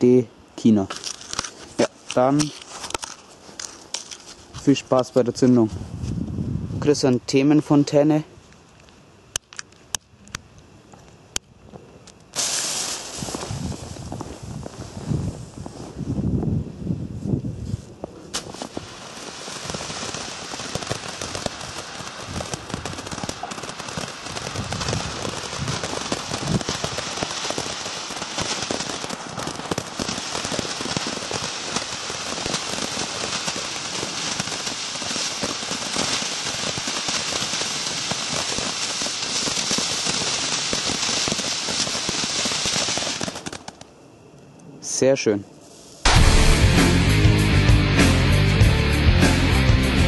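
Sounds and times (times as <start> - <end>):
sparks crackling: 12.1 - 15.5, 18.3 - 44.0, 46.0 - 48.4
fountain firework hissing: 12.4 - 14.0, 18.4 - 43.7
sharp crack: 18.3 - 44.0, 46.0 - 48.6.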